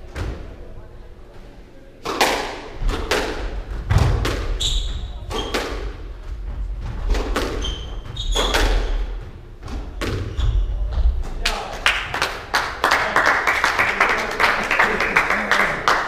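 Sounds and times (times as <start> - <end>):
squash ball knocking off walls: 2.0 - 11.3
shoes squeaking on floor: 4.5 - 11.3.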